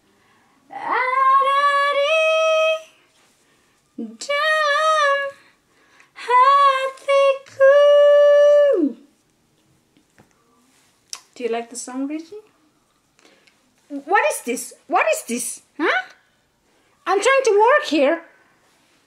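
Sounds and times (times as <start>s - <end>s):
woman singing high held notes: 4.0s - 5.4s, 6.2s - 9.1s.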